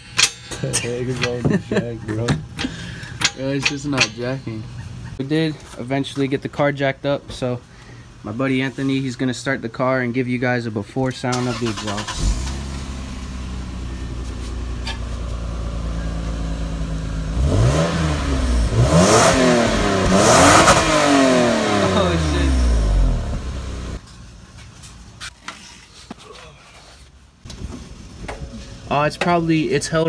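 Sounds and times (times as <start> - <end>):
car engine idling and revving: 11.4 - 24.5.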